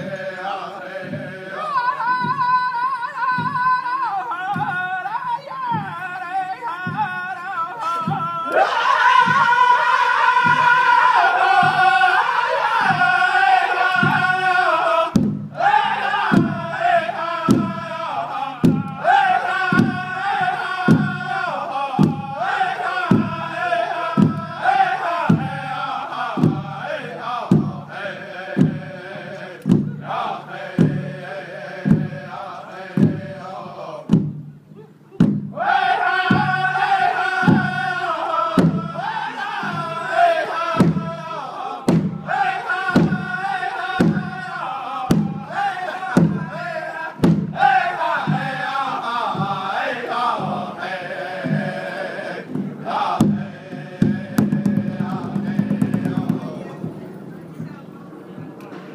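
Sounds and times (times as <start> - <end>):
group singing: 0.0 - 34.4, 35.4 - 57.0
large drum beating: 0.0 - 57.8.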